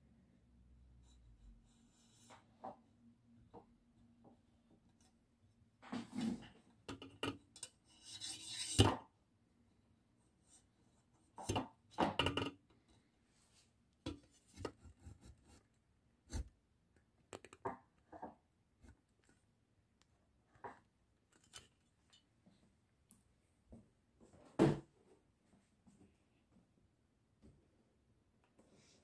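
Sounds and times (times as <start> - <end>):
handling rubbing and scraping: 7.6 - 8.9.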